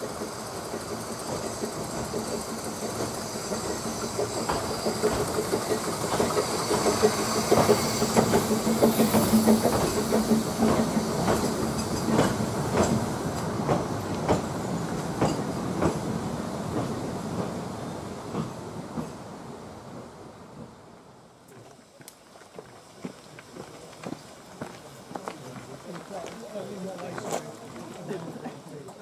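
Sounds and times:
steam train passing: 0:00.0 - 0:29.0
wheels clicking over rail joints: 0:00.1 - 0:16.0.

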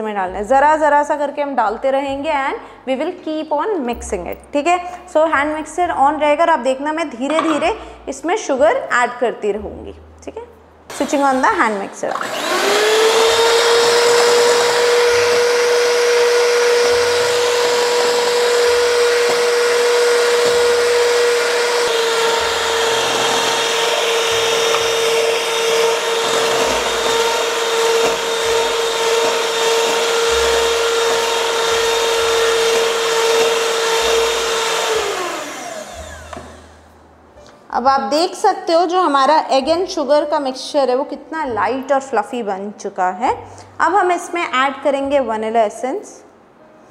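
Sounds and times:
electric hand mixer whining: 0:10.9 - 0:36.9.

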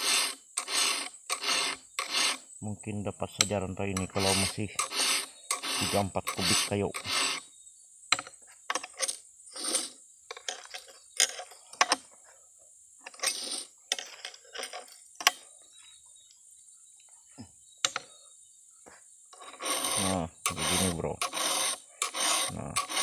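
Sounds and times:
file rasping on chainsaw chain: 0:00.0 - 0:02.5, 0:03.4 - 0:07.5, 0:08.7 - 0:12.0, 0:13.1 - 0:14.9, 0:19.3 - 0:23.0
metallic clicks of file and chain: 0:08.1 - 0:12.2, 0:13.0 - 0:15.5.

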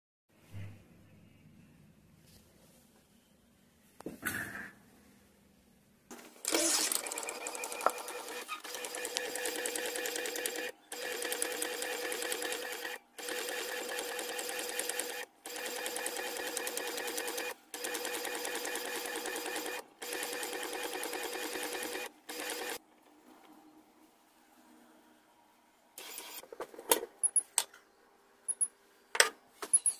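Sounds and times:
inkjet printer carriage chatter: 0:06.5 - 0:22.8.

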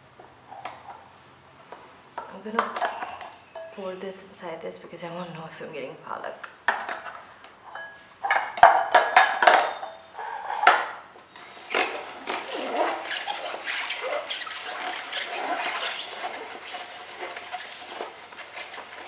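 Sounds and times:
leaves crunching in juicer: 0:11.3 - 0:19.0.

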